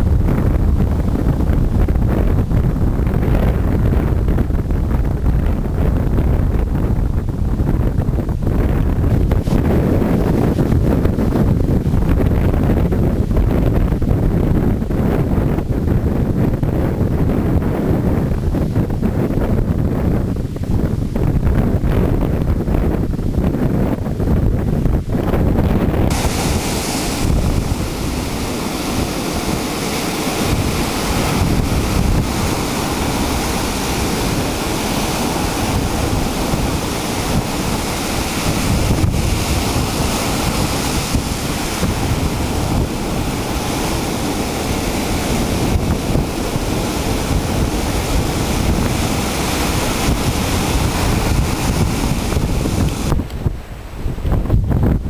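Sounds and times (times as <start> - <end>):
wind buffeting microphone: 0.0 - 55.0
ocean surf breaking: 9.1 - 14.1, 25.9 - 55.0.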